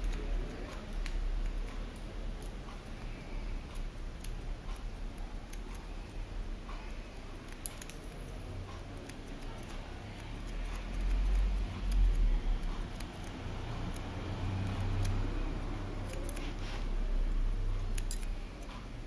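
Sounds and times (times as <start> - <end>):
scissors snipping hair: 0.0 - 5.9, 6.7 - 19.0.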